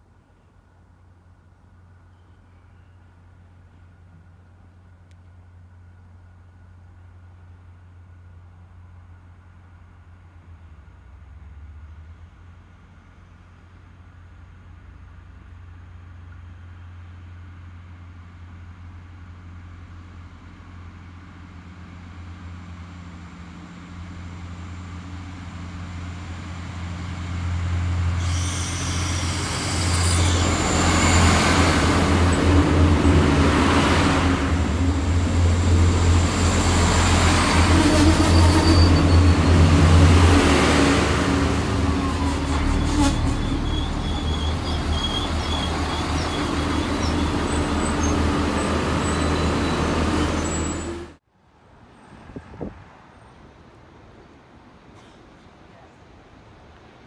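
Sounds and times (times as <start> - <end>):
train engine drone: 0.0 - 51.2
train wheel noise: 27.9 - 51.2
faint high squeaks: 42.0 - 51.0.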